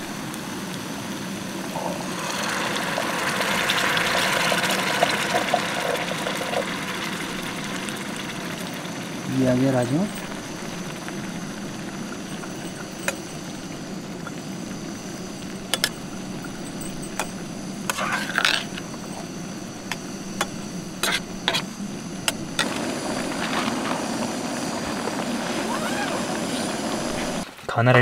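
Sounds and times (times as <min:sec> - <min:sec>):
steady low hum: 0:00.0 - 0:28.0
spatula scraping pan: 0:17.8 - 0:19.0, 0:19.9 - 0:21.7.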